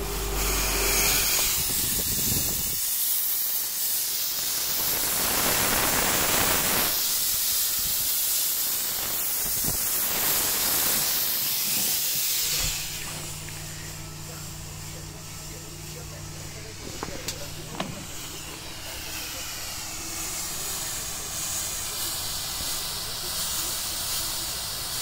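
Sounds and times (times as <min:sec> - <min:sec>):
fog machine hissing: 0:00.0 - 0:25.0
low hum: 0:12.4 - 0:22.1.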